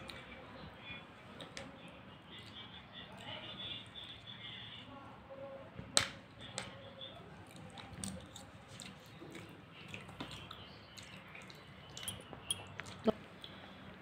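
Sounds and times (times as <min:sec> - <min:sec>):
faint chewing: 0:06.4 - 0:14.0.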